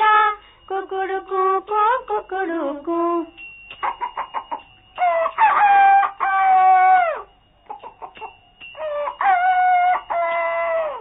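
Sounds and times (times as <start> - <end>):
rooster crowing: 3.8 - 11.0.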